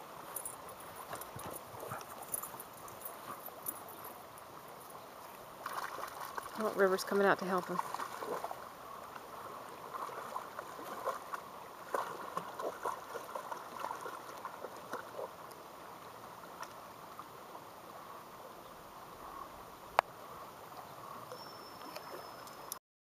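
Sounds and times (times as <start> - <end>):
river running: 0.0 - 22.8
dogs splashing in water: 5.6 - 8.6, 9.4 - 15.4.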